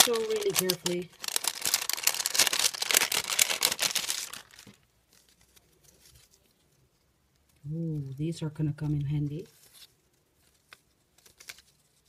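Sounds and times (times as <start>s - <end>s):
envelope crinkling: 0.0s - 7.6s, 9.4s - 12.0s.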